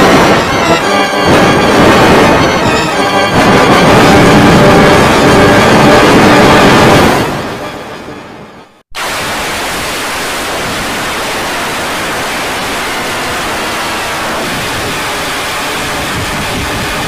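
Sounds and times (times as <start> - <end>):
heavily distorted sound: 0.0 - 17.0
loud static hiss: 9.0 - 17.0.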